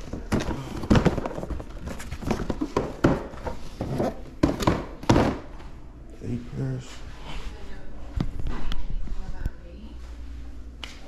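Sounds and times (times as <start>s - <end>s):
cardboard boxes knocking and scuffing: 0.0s - 5.4s.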